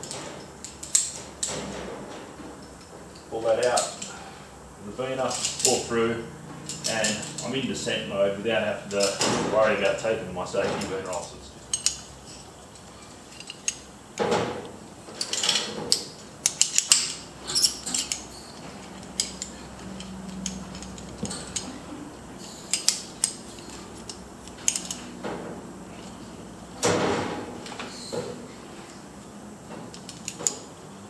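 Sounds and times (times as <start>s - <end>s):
metal climbing hardware clinking: 10.6s - 14.3s, 15.2s - 25.2s, 29.9s - 30.7s.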